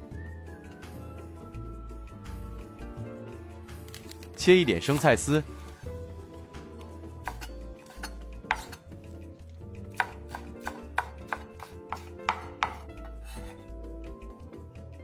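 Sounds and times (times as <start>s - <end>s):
cleaver chopping on cutting board: 7.2s - 8.8s, 10.0s - 13.6s.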